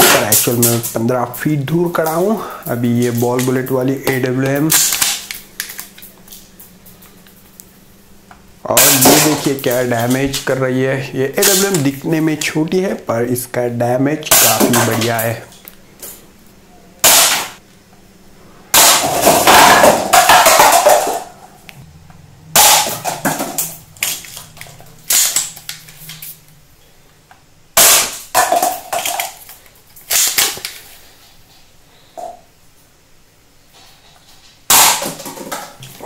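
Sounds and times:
paper cups clattering: 0:00.0 - 0:07.3, 0:08.8 - 0:13.1, 0:14.2 - 0:16.2, 0:18.8 - 0:21.4, 0:22.6 - 0:26.4, 0:27.9 - 0:31.6, 0:33.8 - 0:36.0
toy rifle shots: 0:04.7 - 0:05.4, 0:17.0 - 0:17.6, 0:22.6 - 0:24.2, 0:25.0 - 0:25.8.

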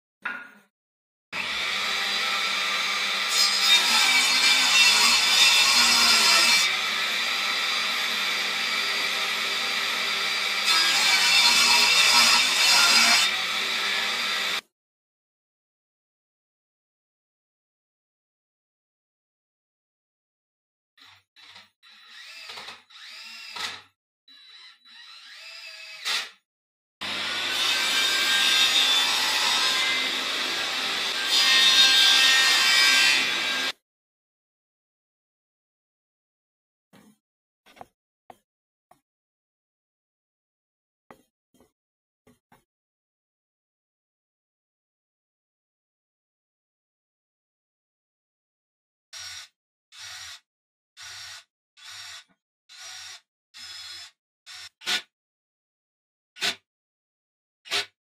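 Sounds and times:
table saw running: 0:27.0 - 0:33.8
saw ripping wooden board: 0:54.5 - 0:55.1, 0:56.4 - 0:56.6.

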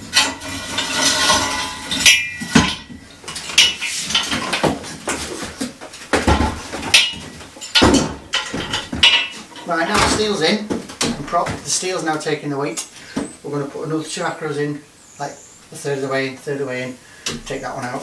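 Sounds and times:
metallic clanks ringing: 0:00.0 - 0:04.6, 0:06.8 - 0:10.2.

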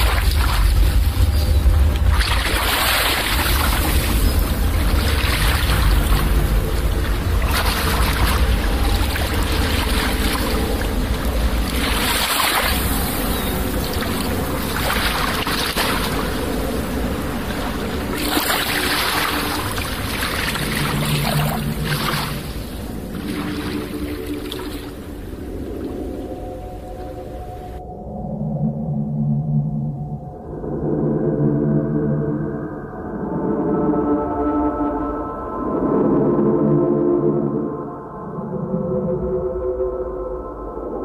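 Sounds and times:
deep bass: 0:00.0 - 0:11.6
electronic music with wave-like swells: 0:00.0 - 0:41.0.

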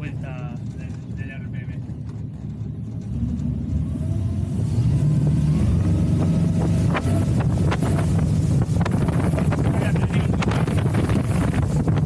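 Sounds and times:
boat engine revving: 0:00.0 - 0:12.0.

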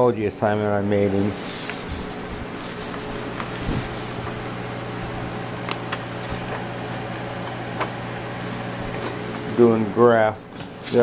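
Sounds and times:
mechanical hum: 0:00.0 - 0:11.0
paper sheets rustling: 0:01.2 - 0:04.6, 0:05.6 - 0:09.4, 0:10.6 - 0:11.0.

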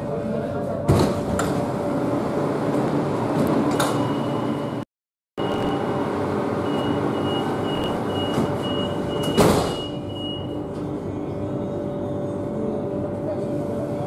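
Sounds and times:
high door warning beeps: 0:05.4 - 0:06.0, 0:06.6 - 0:10.6
sliding doors shutting thud: 0:09.2 - 0:09.8.

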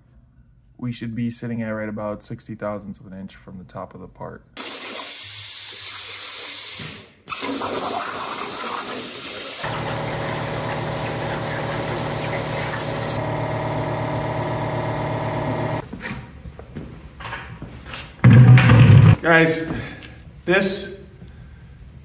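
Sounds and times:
plasma cutter hissing: 0:08.4 - 0:13.2
buzzing hum: 0:09.6 - 0:15.8.

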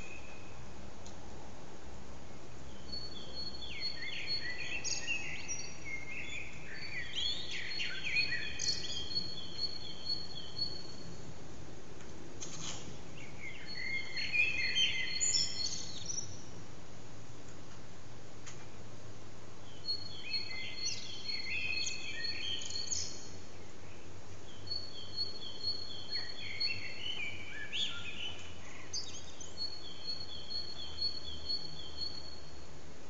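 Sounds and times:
blackbirds singing: 0:00.0 - 0:00.6, 0:02.3 - 0:11.3, 0:13.0 - 0:16.6, 0:19.6 - 0:32.7
low background noise: 0:00.0 - 0:33.0.

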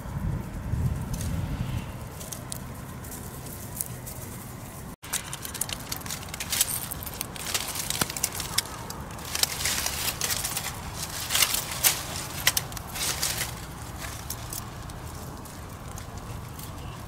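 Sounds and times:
twigs and leaves rustling: 0:00.0 - 0:17.0
twigs snapping: 0:05.0 - 0:17.0.

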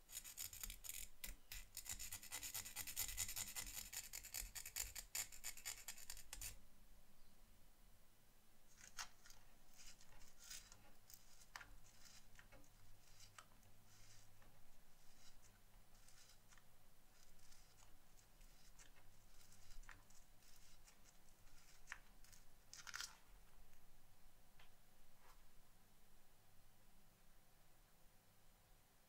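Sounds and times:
file scraping metal: 0:09.7 - 0:20.9
sanding sponge scratches: 0:09.8 - 0:12.3, 0:13.0 - 0:14.4, 0:15.0 - 0:16.6, 0:17.2 - 0:21.9.

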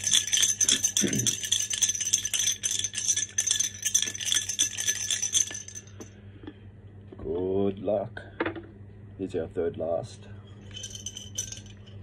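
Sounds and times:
chips rattling in ceramic jar: 0:00.0 - 0:06.0, 0:10.6 - 0:12.0.

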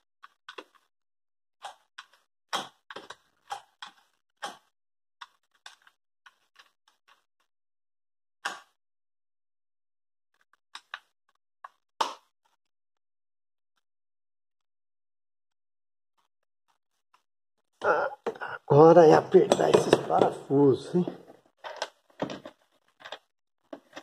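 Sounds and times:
clicks and knocks on plastic: 0:18.2 - 0:24.0.

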